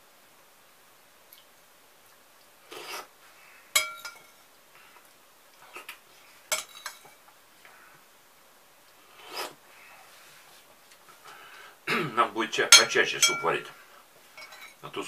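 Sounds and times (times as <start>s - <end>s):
slurp of soup: 2.7s - 3.1s
spoon clinking on ceramic plate: 3.8s - 4.4s, 6.5s - 7.1s, 12.8s - 13.6s, 14.4s - 14.8s.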